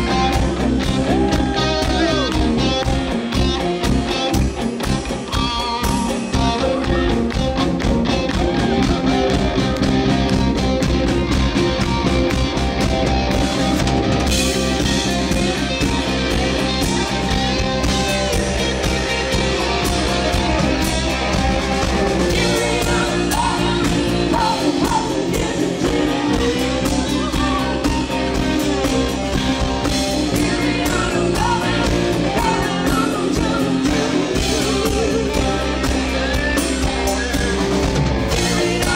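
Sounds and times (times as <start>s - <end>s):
live rock band playing: 0.0s - 38.9s
woman singing: 22.3s - 36.9s.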